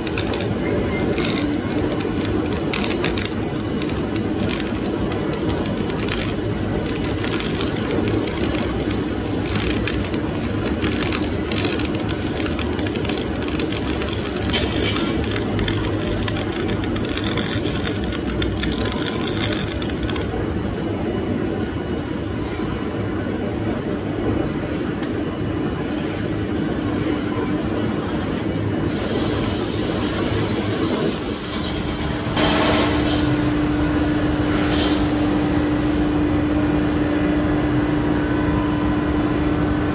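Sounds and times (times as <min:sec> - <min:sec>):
welding arc buzzing: 0:00.0 - 0:20.8, 0:28.8 - 0:36.2
machine hum: 0:00.0 - 0:39.9.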